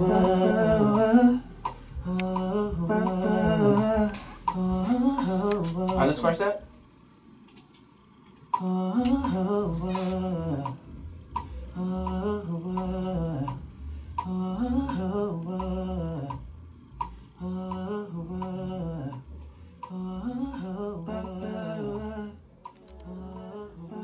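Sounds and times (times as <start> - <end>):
man humming a melody: 0.0 - 6.0.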